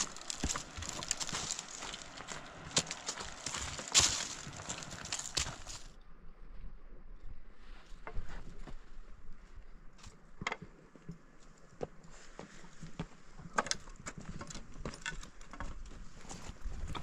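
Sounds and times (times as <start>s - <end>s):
small stones rattling: 0.0s - 5.8s
footsteps on stony ground: 0.0s - 5.9s.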